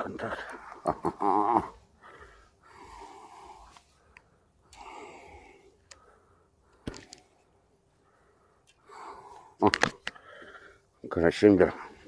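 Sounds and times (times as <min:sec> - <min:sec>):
man breathing out heavily: 0:01.6 - 0:11.0.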